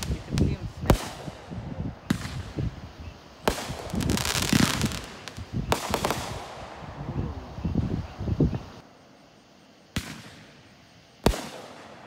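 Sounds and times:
fireworks bangs: 0.0 - 8.8, 9.9 - 12.0
crackling of bursting shells: 3.4 - 6.6.

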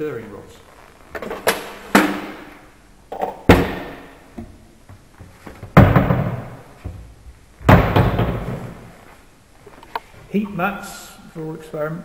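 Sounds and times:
cupboard doors thudding shut: 5.4 - 8.8.

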